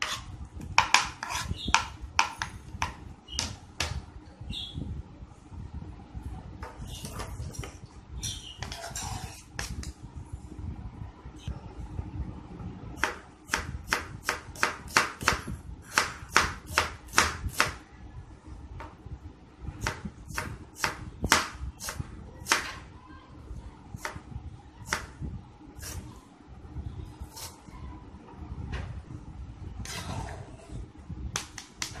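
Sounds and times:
knife chopping on plastic board: 0.0 - 4.0, 13.0 - 17.8, 19.8 - 22.8, 31.4 - 32.0.

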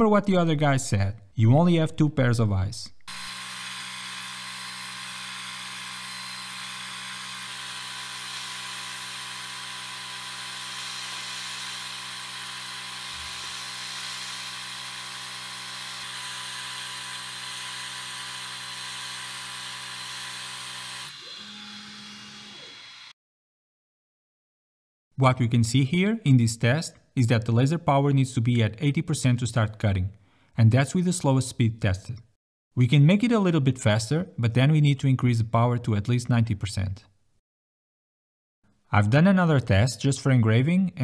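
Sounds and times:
laser engraver hum: 3.1 - 23.1.

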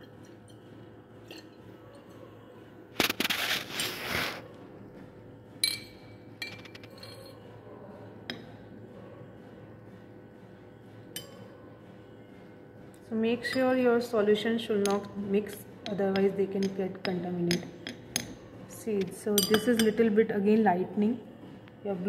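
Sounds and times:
glass rod clinking on beaker: 1.2 - 1.6, 5.6 - 7.4, 19.4 - 20.0.

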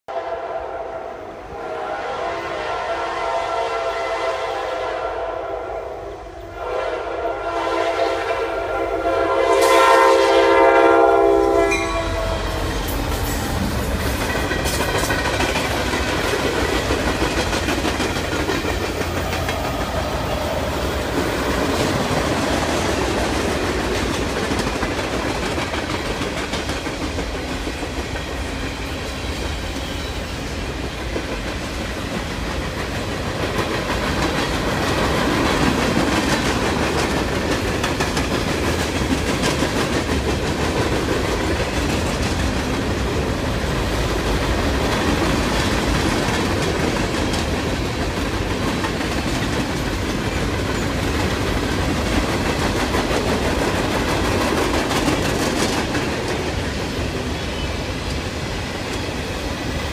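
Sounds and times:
train air horn blasts: 0.1 - 14.2
freight train wheels rumbling: 1.1 - 59.9.

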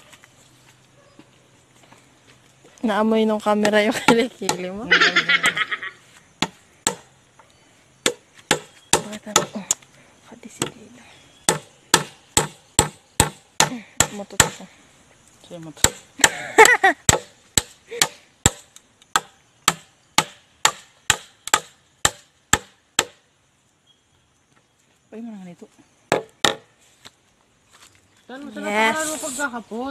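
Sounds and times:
machete chopping bamboo: 6.4 - 7.1, 8.0 - 9.8, 11.4 - 14.6, 15.8 - 23.2, 26.1 - 26.7.

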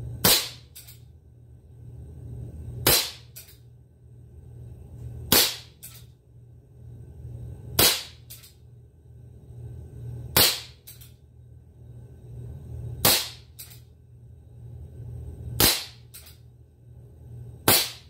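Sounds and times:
air pistol shots: 0.2 - 0.9, 2.8 - 3.5, 5.3 - 6.0, 7.8 - 8.5, 10.4 - 11.0, 13.0 - 13.8, 15.6 - 16.3, 17.7 - 18.0.

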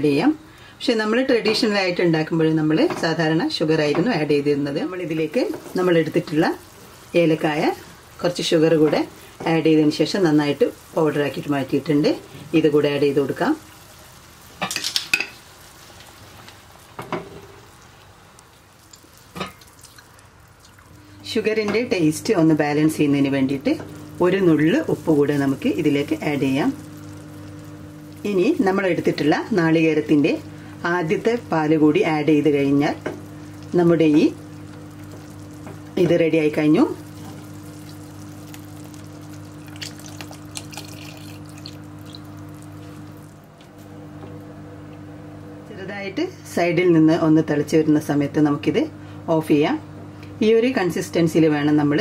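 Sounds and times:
liquid pouring into pot: 13.6 - 21.2, 23.6 - 31.5, 36.9 - 43.5
small splashes and drips: 17.7 - 21.2, 37.0 - 43.4.

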